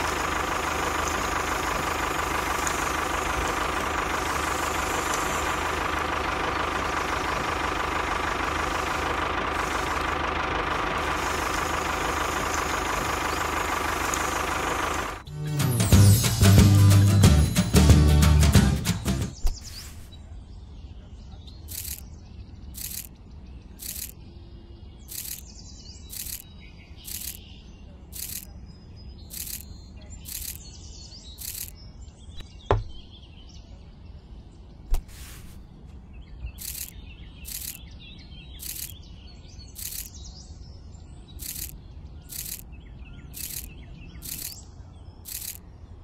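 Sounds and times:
birds chirping: 0.0s - 16.2s, 19.0s - 46.0s
sharp clicks: 0.8s - 7.5s, 11.3s - 14.4s, 21.7s - 22.1s, 22.8s - 23.2s, 23.8s - 24.2s, 25.1s - 25.5s, 26.1s - 27.4s, 28.2s - 28.5s, 29.3s - 29.7s, 30.3s - 30.7s, 31.4s - 31.8s, 36.6s - 37.8s, 38.6s - 39.0s, 39.7s - 40.2s, 41.4s - 42.7s, 43.3s - 44.6s, 45.3s - 45.6s.

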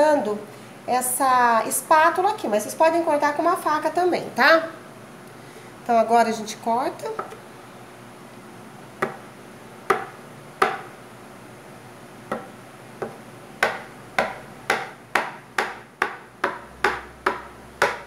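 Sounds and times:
spatula chopping on stone: 9.0s - 9.3s, 9.9s - 10.9s, 12.3s - 18.0s.

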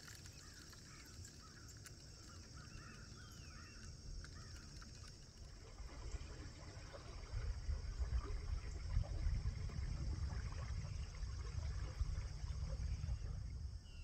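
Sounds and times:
low outdoor rumble: 0.0s - 14.0s
birds chirping: 0.1s - 5.2s.

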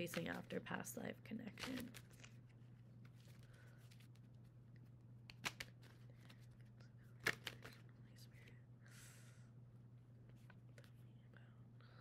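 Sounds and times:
cards being handled: 0.0s - 0.6s, 1.5s - 7.9s
faint low hum: 0.0s - 12.0s
sharp card snaps: 5.2s - 6.0s, 7.2s - 7.8s.

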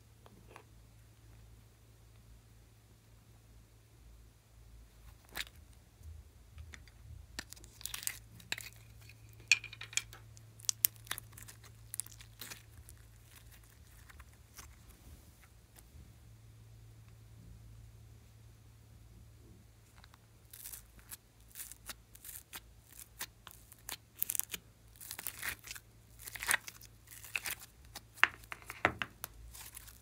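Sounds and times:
plastic and jelly crackling: 6.6s - 15.9s, 19.8s - 30.0s.

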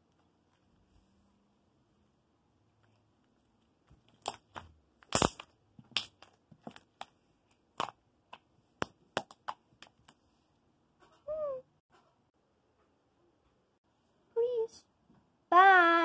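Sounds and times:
slime squished by hand: 4.1s - 10.1s.

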